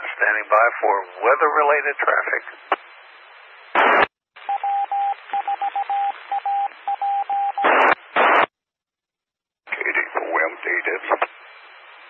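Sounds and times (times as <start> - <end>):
radio hiss: 0.0 - 4.6, 7.6 - 8.5, 9.7 - 12.0
static bursts: 0.0 - 8.6, 9.7 - 12.0
morse code beep tone: 4.4 - 7.7.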